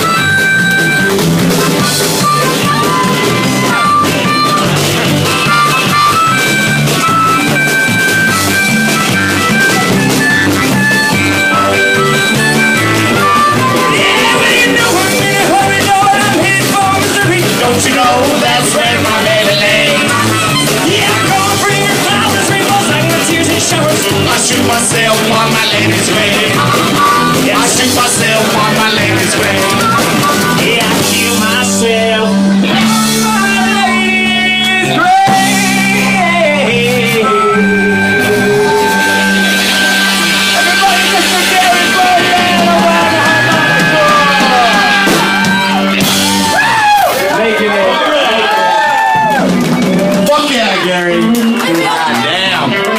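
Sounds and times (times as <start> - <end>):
harmonica: 0.0 - 47.0
live rock band playing: 0.0 - 52.9
person singing: 11.5 - 39.7, 40.5 - 45.8.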